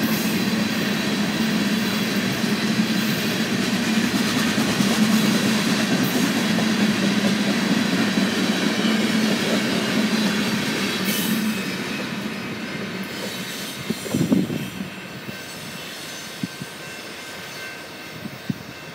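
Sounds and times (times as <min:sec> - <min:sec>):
freight train wheels on rails: 0:00.0 - 0:18.9.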